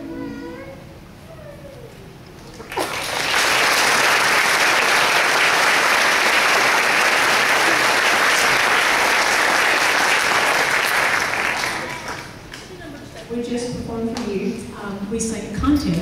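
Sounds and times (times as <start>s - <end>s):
audience applauding: 2.5s - 12.8s.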